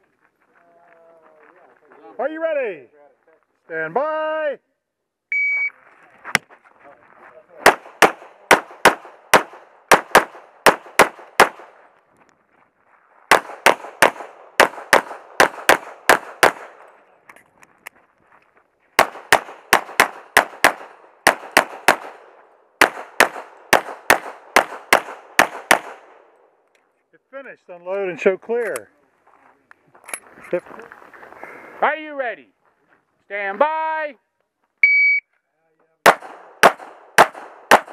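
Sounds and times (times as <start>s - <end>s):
pistol firing rapid shots: 7.6s - 11.7s, 13.3s - 16.8s, 19.0s - 26.2s, 36.0s - 37.9s.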